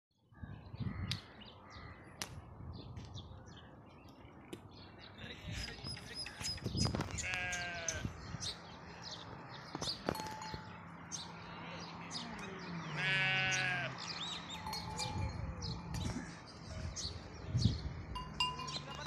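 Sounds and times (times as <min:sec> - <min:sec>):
farm animal bleating: 0:07.1 - 0:08.2, 0:12.7 - 0:14.2.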